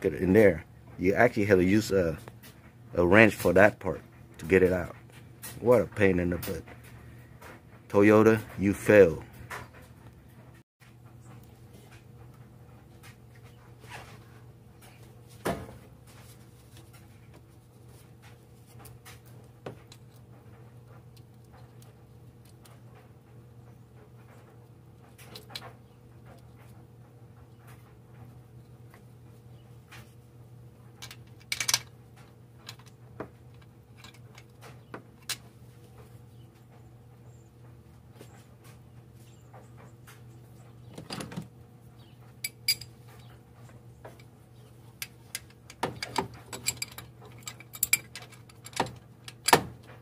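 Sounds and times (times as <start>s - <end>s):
low steady hum: 0.0s - 50.0s
parts clicking and tapping: 44.9s - 50.0s.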